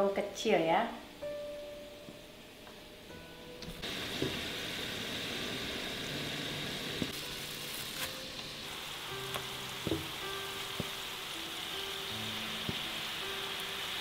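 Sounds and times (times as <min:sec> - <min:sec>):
oil sizzling with pops: 0:03.6 - 0:14.0.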